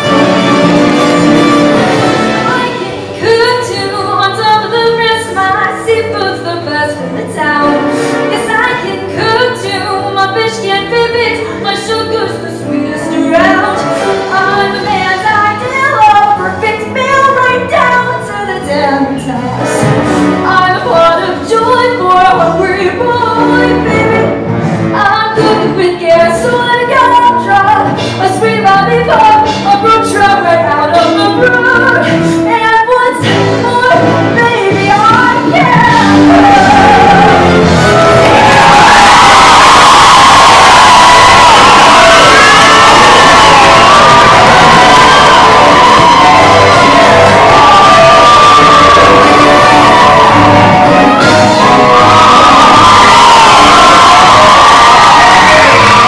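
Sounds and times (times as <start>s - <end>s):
instrumental accompaniment: 0.0s - 56.0s
choir singing: 42.9s - 53.6s.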